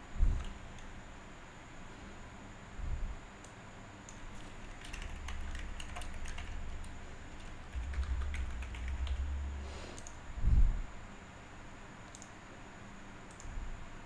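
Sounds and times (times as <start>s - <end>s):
low rumble: 6.4s - 11.0s
keyboard keystroke clicks: 13.3s - 13.5s.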